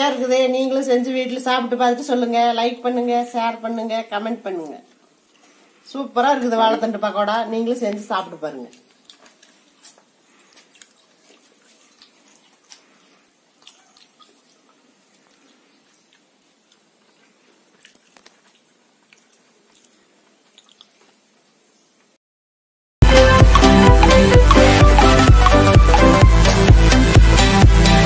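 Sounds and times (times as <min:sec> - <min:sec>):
crunching and chewing: 0:04.9 - 0:05.8, 0:08.7 - 0:21.4.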